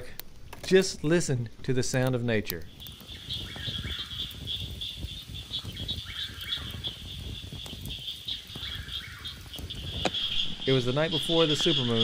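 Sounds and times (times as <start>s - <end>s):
frogs and insects trilling: 2.7s - 12.0s
lower frog calls: 2.7s - 12.0s.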